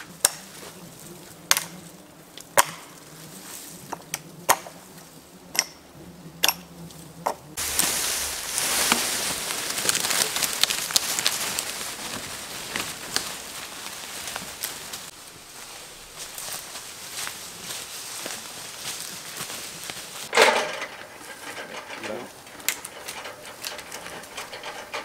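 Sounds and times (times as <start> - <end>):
rustling leaves and brush: 0.0 - 25.0
axe chopping branches: 0.1 - 0.6, 2.5 - 3.0, 4.5 - 4.8, 7.6 - 11.8
twigs snapping: 7.6 - 15.2.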